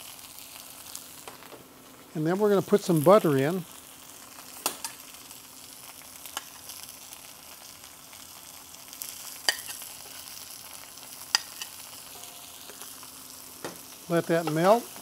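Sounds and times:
steak sizzling in skillet: 0.0s - 15.0s
spoon clicking on pan: 9.5s - 9.8s, 11.3s - 12.9s.

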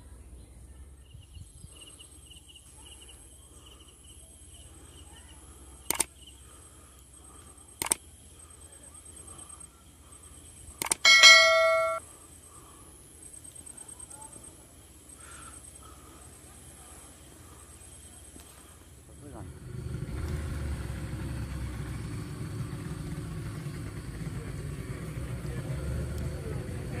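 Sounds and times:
sharp clicks: 5.8s - 6.1s, 7.8s - 8.0s, 10.8s - 12.0s
bright bell ding: 11.1s - 12.0s.

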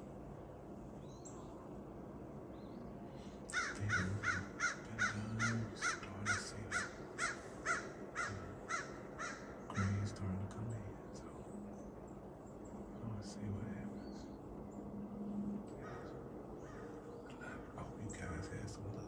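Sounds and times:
crow cawing: 3.5s - 10.1s, 15.8s - 17.7s.

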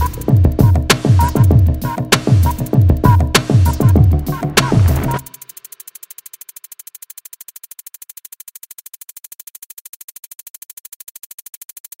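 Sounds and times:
rapid electronic pulsing: 0.0s - 12.0s.

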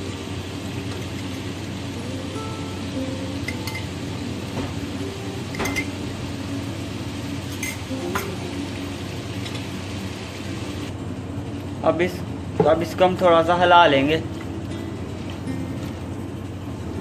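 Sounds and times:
chicken sizzling in hot oil: 0.0s - 11.8s.

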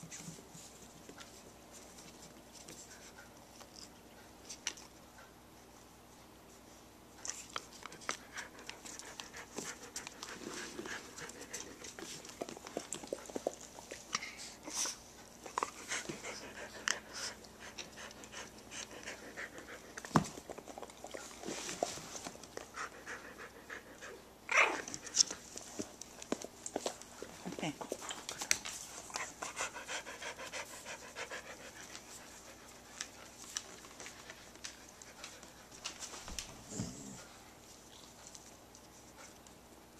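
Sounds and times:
dogs panting: 7.8s - 39.6s.

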